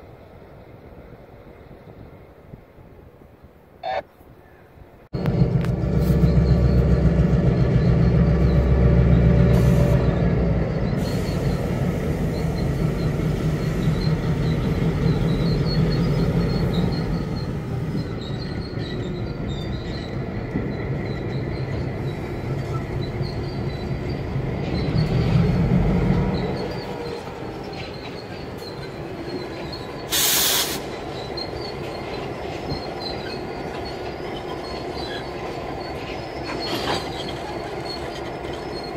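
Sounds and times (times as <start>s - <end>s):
diesel locomotive engines rumbling: 0.0s - 38.9s
wheel squeal: 5.2s - 38.9s
short burst of hiss: 30.1s - 30.9s.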